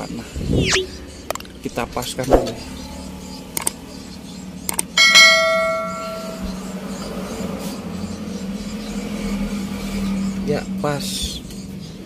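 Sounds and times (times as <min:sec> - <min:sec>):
ringing metallic clang: 0:05.0 - 0:06.6.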